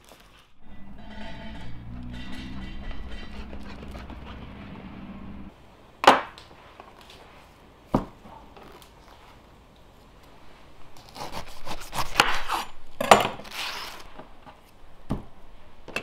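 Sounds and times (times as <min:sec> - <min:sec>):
low steady drone: 0:00.6 - 0:05.5.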